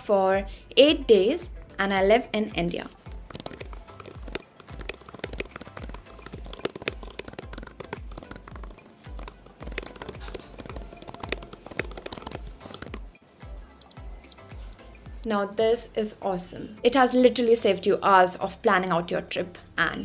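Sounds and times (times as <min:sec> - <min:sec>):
computer keyboard typing: 0:03.1 - 0:13.1.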